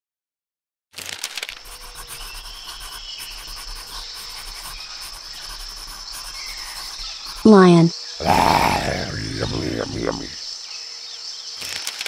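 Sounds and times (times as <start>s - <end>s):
insects chirring: 1.5s - 11.8s
faint bird chirp: 1.6s - 8.2s.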